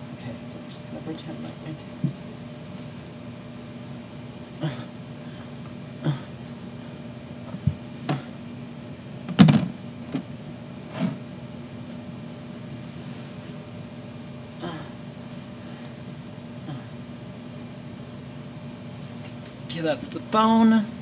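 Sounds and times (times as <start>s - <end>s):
steady low hum: 0.0s - 21.0s
phone case knocks and bumps: 9.3s - 9.8s.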